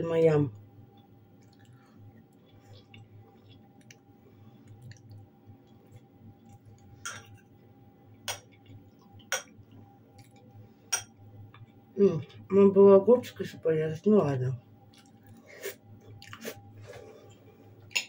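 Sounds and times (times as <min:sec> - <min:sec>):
faint steady hum: 0:00.0 - 0:18.0
quiet chewing: 0:00.6 - 0:12.5, 0:14.8 - 0:18.0.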